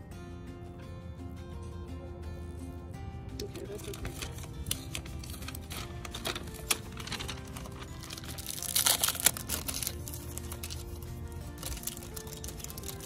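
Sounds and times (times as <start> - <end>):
background music: 0.0 - 13.0
packaging paper crinkling and tearing: 3.4 - 13.0.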